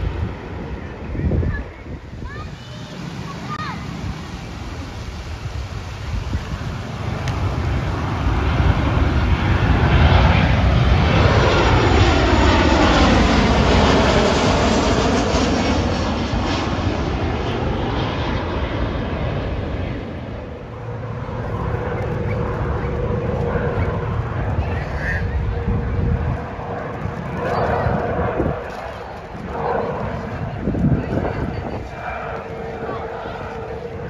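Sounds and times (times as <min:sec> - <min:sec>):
helicopter hum: 0:00.0 - 0:34.0
jet airliner passing overhead: 0:00.0 - 0:34.0.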